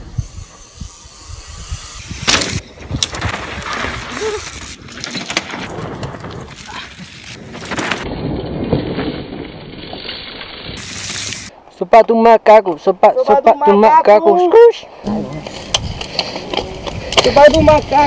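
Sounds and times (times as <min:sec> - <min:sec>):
bike tyres skidding on dirt: 0:01.8 - 0:11.5
bikes thumping on rough ground: 0:02.0 - 0:11.5.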